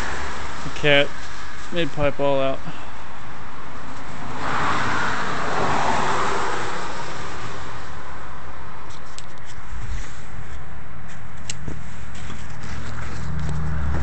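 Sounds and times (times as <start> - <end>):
vehicle passing: 3.5 - 8.3, 12.5 - 14.0.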